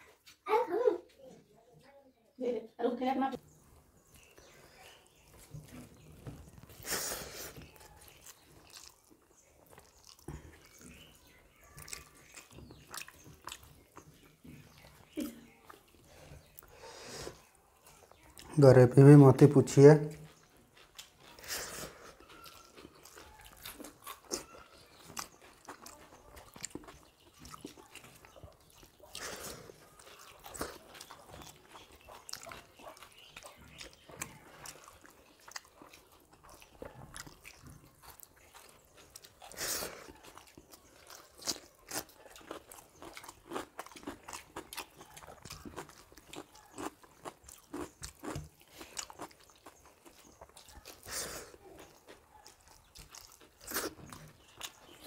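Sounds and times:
crunches and clicks of eating: 3.4s - 18.6s, 19.6s - 55.0s
person chewing food: 3.5s - 18.6s, 19.8s - 55.0s.

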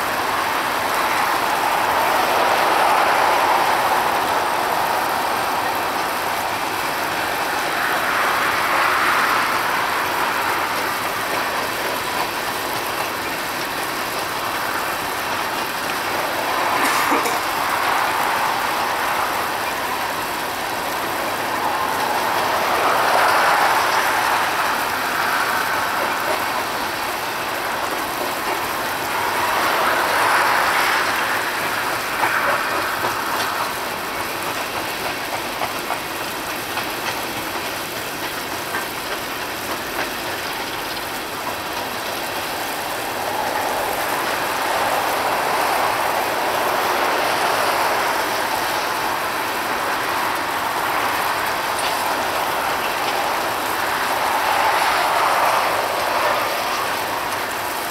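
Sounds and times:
train wheels rumbling on rails: 0.0s - 57.9s.

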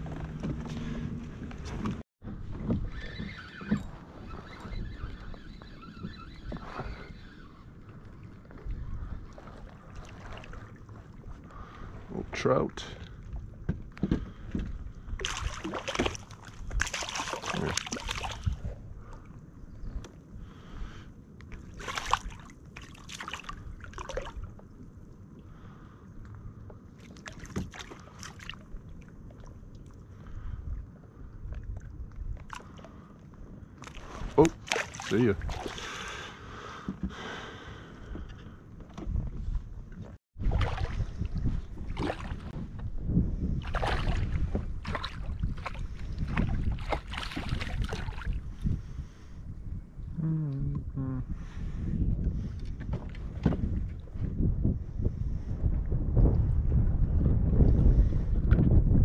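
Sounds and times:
wind rumble on microphone: 0.0s - 59.0s
low steady rumble: 47.7s - 52.2s.

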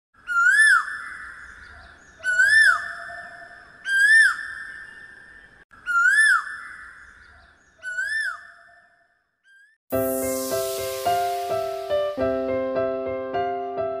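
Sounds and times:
high swooping jingle note: 9.9s - 12.4s.

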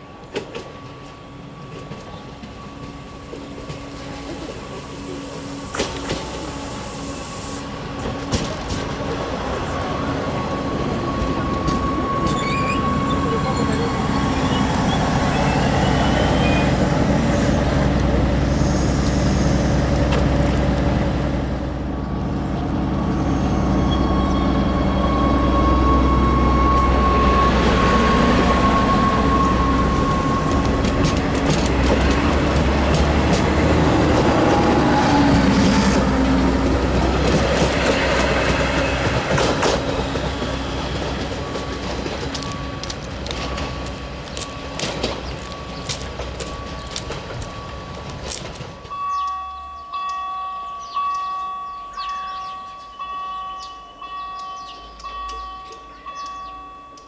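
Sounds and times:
diesel railcar engine running: 0.0s - 57.0s
wheels clicking over rail joints: 30.4s - 50.3s
level crossing warning bell: 40.7s - 57.0s.

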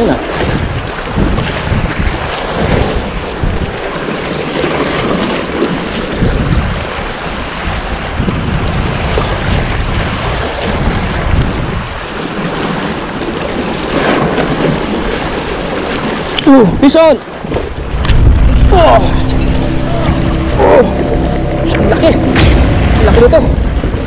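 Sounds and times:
wind buffeting microphone: 0.0s - 4.0s, 4.9s - 12.2s.

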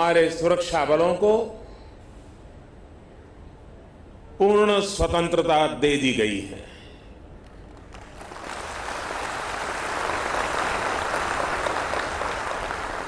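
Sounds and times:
audience applauding: 7.7s - 13.0s.

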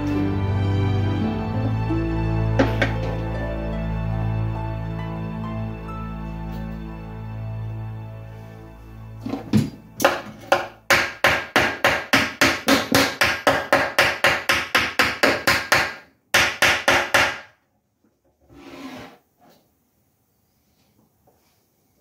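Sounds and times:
hammer striking metal rivets: 10.0s - 17.5s
soft scrape: 18.4s - 19.6s.

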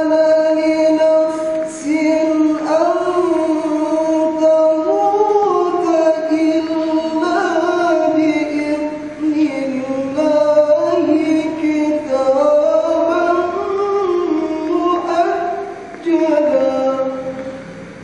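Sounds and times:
man reciting melodically: 0.0s - 18.0s.

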